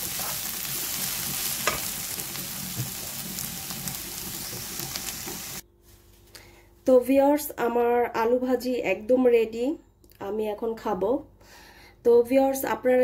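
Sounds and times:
food sizzling in frying pan: 0.0s - 5.6s.

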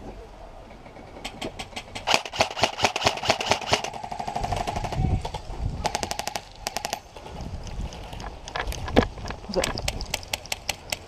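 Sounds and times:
airsoft rifle rapid fire: 2.0s - 5.0s, 5.8s - 7.0s.

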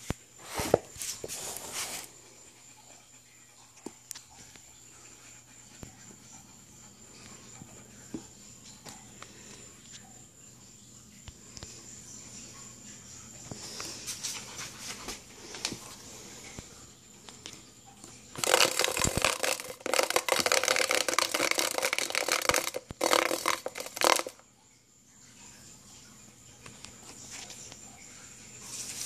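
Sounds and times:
insect buzzing against plastic: 18.4s - 24.4s.

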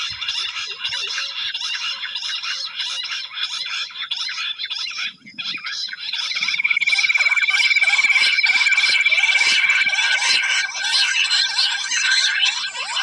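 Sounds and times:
quail chattering chorus: 0.0s - 13.0s
steady high trill: 6.4s - 10.8s.

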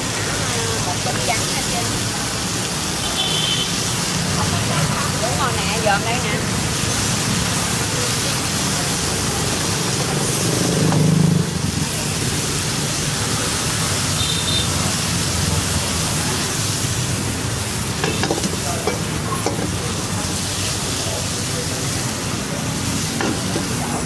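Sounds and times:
hot oil sizzling: 0.0s - 24.0s
street traffic: 0.0s - 24.0s
voices: 0.0s - 24.0s.

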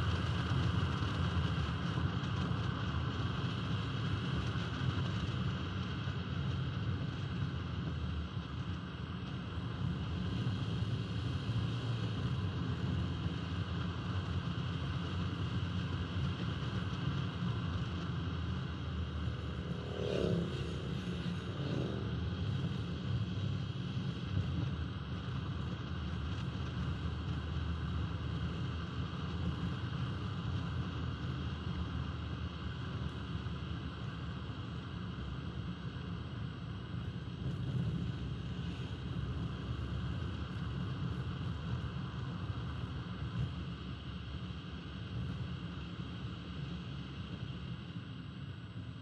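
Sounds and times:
car road wind and engine noise: 0.0s - 49.0s
motorcycles passing: 18.5s - 23.6s.

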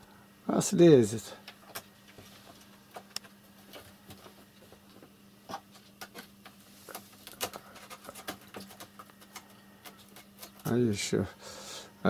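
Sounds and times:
faint steady hum: 0.0s - 12.0s
cat claws scratching wood: 5.5s - 10.8s.

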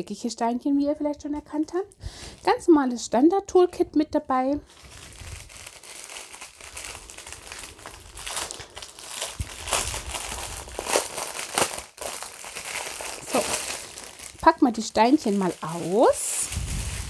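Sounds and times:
plastic packaging crinkling: 4.6s - 17.0s.

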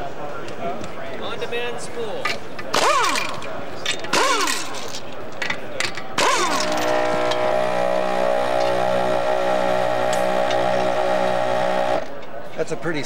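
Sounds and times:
air compressor humming: 4.1s - 4.9s, 6.2s - 12.2s
impact gun whine spinning down: 6.2s - 12.2s.

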